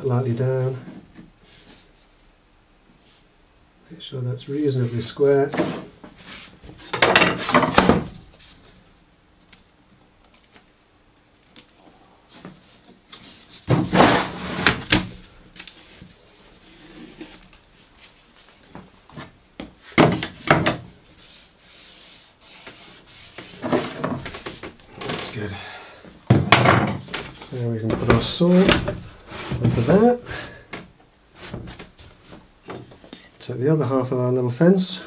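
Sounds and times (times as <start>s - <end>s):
wood scraping across workbench: 5.4s - 8.7s, 12.3s - 15.1s, 19.9s - 25.5s, 26.5s - 30.5s.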